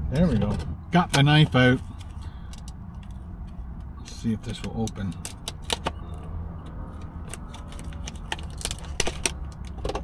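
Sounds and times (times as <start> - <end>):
plastic packaging crackling: 7.4 - 9.4.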